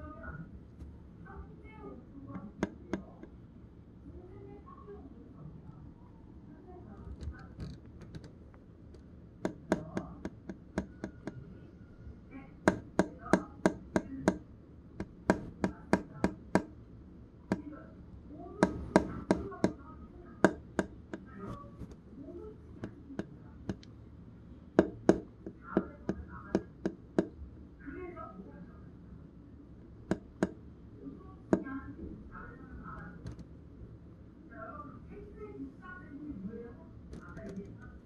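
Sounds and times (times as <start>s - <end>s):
fingertip tapping on plastic: 2.3s - 3.3s, 9.4s - 11.5s, 12.6s - 16.8s, 17.5s - 17.8s, 18.6s - 19.8s, 20.4s - 22.0s, 22.7s - 23.9s, 24.8s - 27.4s, 29.8s - 30.6s.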